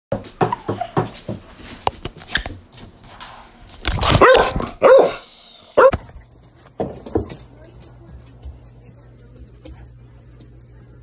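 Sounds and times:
dog barking in play: 4.0s - 5.2s, 5.8s - 6.1s.

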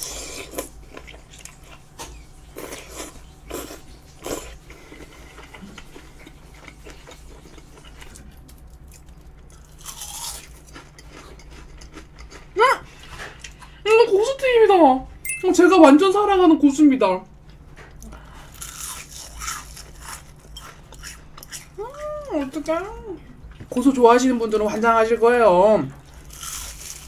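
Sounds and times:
person biting and chewing: 6.7s - 12.3s, 18.5s - 21.8s, 26.2s - 27.0s.

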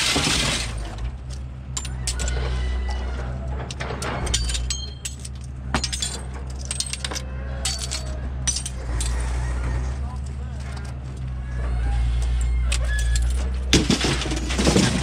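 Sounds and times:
metallic rattles: 3.4s - 9.6s
metal window frames clattering: 3.6s - 9.2s
glass shards tinkling: 4.2s - 9.2s.

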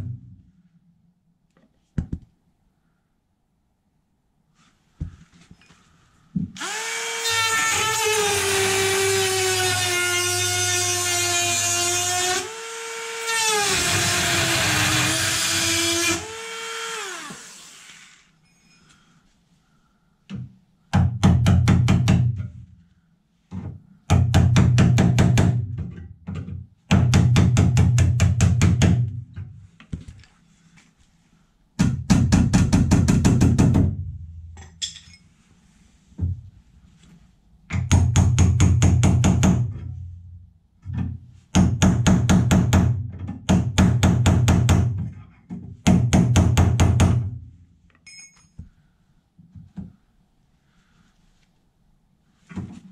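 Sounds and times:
electric drill whining: 6.6s - 18.2s.

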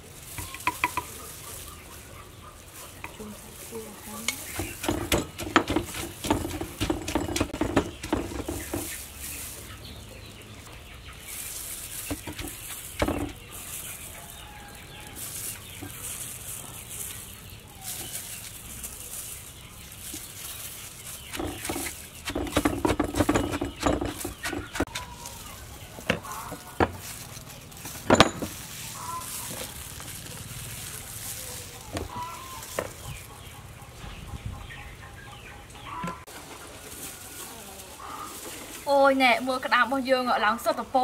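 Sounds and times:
wooden pestle pounding in mortar: 4.3s - 8.9s, 12.1s - 13.4s, 21.3s - 25.1s.

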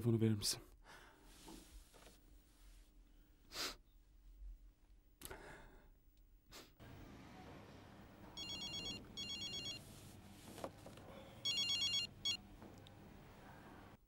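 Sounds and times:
phone ringtone trilling: 8.4s - 9.8s, 11.4s - 12.4s.

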